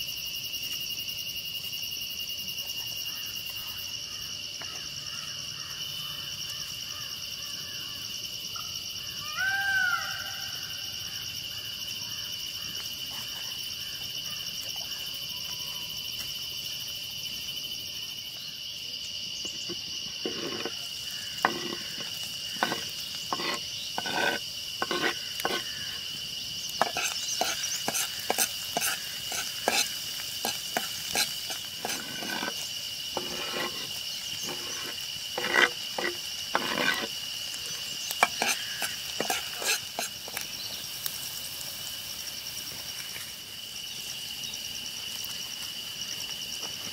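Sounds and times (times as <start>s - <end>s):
insects droning: 0.0s - 46.9s
cooking clicks and knocks: 26.7s - 32.6s, 38.1s - 40.5s.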